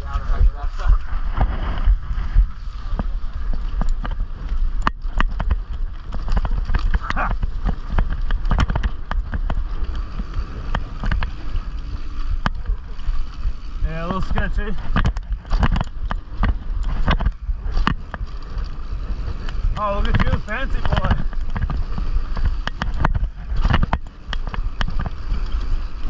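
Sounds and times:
low rumble of bike riding: 0.0s - 26.0s
camera mount rattling and knocking: 3.7s - 9.6s, 14.8s - 18.3s, 20.1s - 25.2s.

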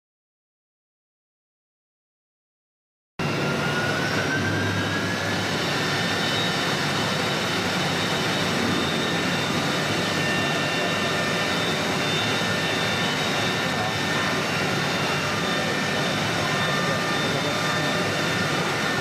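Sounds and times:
router spindle whining: 3.2s - 19.0s.

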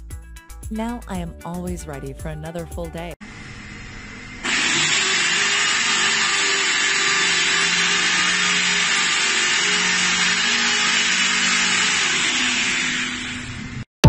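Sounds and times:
drywall sander hissing: 3.2s - 13.9s.

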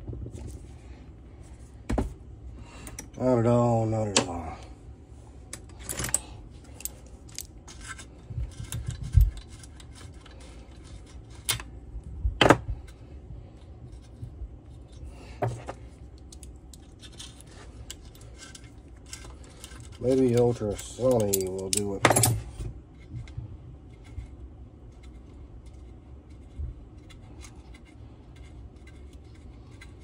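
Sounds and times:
pliers clicking on metal: 17.9s - 22.3s.

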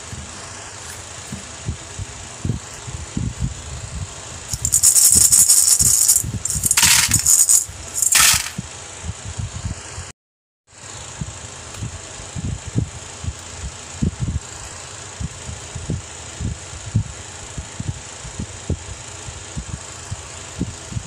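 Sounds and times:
hard sweets clattering into plastic: 4.5s - 8.6s.

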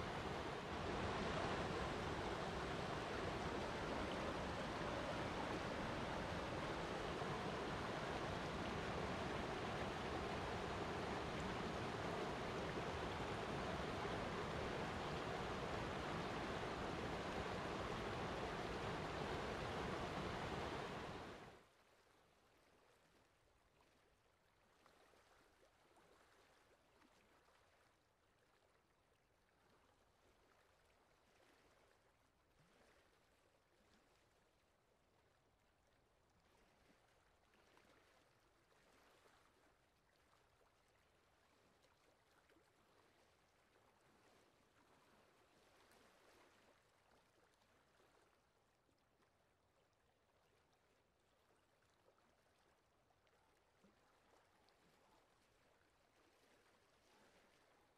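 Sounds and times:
rushing river water: 0.0s - 21.6s
faint flowing water: 0.0s - 57.9s.

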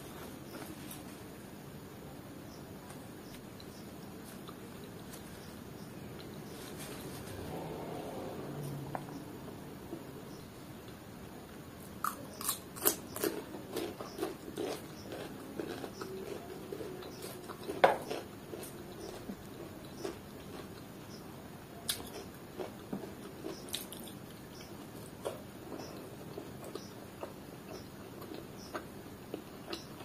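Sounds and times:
crunchy cucumber chewing: 2.8s - 9.2s, 11.8s - 30.0s.

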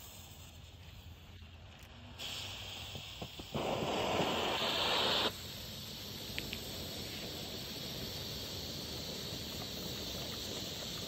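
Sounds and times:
firework fountain hissing: 0.0s - 11.0s
faint crackles: 6.1s - 11.0s.

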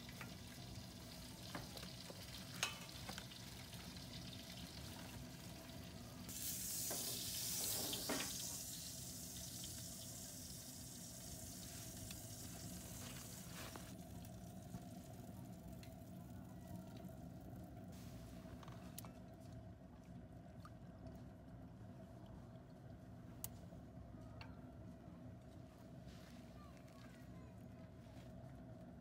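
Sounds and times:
pork sizzling: 0.0s - 15.3s
faint steady hum: 0.0s - 29.0s.

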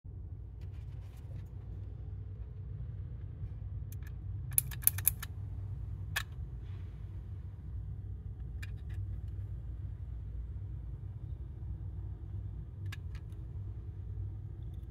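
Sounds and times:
steady low hum: 0.1s - 14.9s
plastic parts clicking and knocking: 4.0s - 5.3s.

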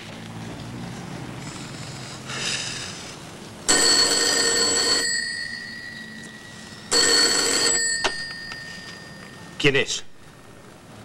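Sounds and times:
desk telephone ringing: 3.7s - 10.4s.

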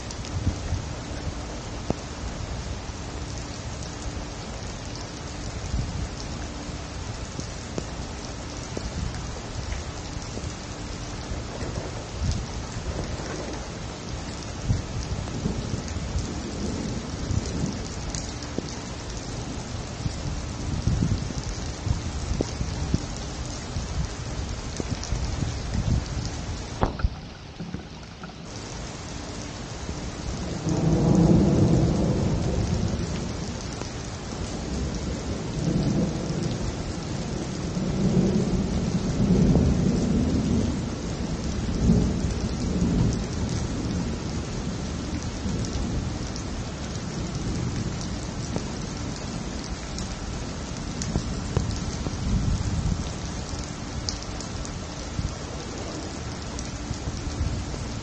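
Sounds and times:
steady rain falling: 0.0s - 58.0s
rolling thunder: 11.2s - 13.9s, 14.5s - 28.6s, 30.2s - 33.8s, 34.4s - 46.4s.

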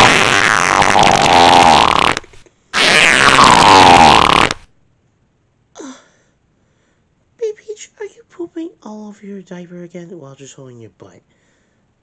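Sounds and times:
fart noises: 0.0s - 4.7s.

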